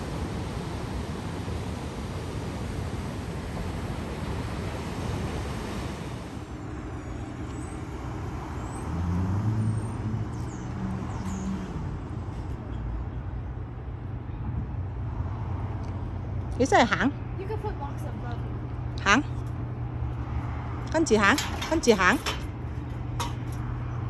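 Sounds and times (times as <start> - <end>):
surf rushing: 0.0 - 6.6
street traffic: 0.0 - 24.0
vehicle engine passing close: 6.3 - 12.6.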